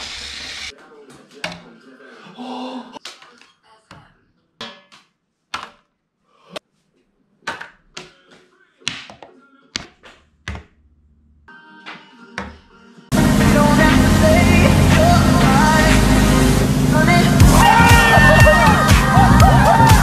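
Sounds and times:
playing cards striking holders: 7.4s - 8.2s, 8.8s - 10.8s.

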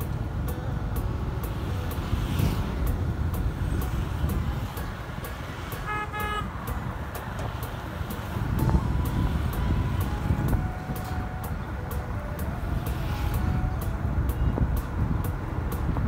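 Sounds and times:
low traffic rumble: 0.0s - 16.0s
vehicle horn toots: 5.8s - 6.8s.

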